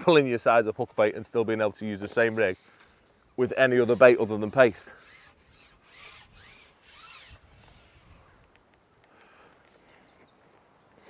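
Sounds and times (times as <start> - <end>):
fishing pole sliding through hands: 2.1 - 8.4.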